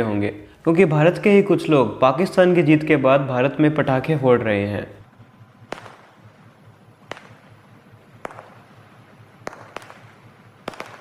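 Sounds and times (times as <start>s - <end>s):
low hiss: 0.0s - 11.0s
firecrackers banging: 5.0s - 11.0s.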